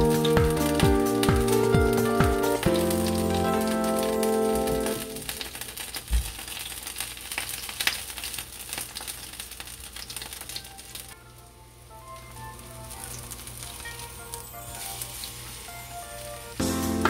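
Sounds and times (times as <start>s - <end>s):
background music: 0.0s - 5.4s, 11.2s - 17.0s
frying sizzle: 0.0s - 17.0s.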